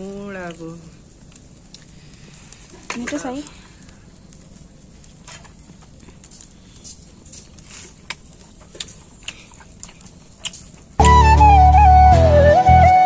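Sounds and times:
sharp clicks and crackles: 0.0 - 11.0
flute music over a drone: 11.0 - 13.0.

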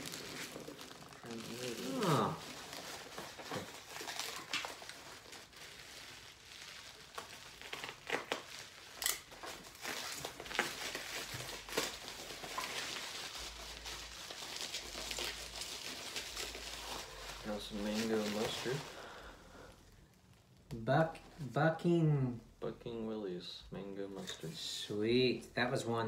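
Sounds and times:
packing peanuts rustling: 0.0 - 20.6
bubble wrap crinkling: 0.0 - 21.9.

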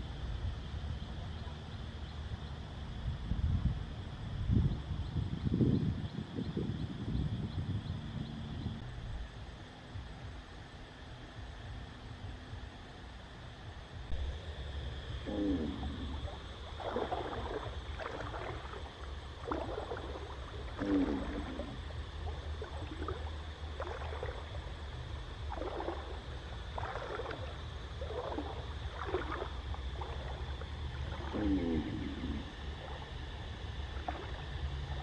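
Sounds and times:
water splashing in stream: 15.3 - 35.0.

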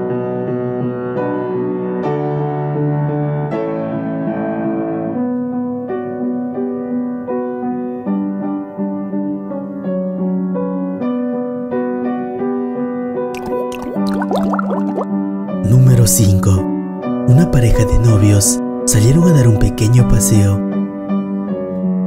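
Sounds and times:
slow piano music: 15.6 - 22.0.

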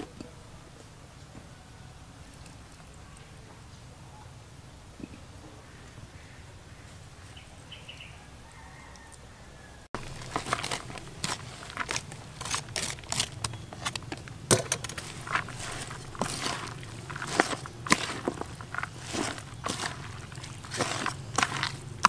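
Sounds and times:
vegetables crackling in plastic bowl: 10.0 - 22.0.

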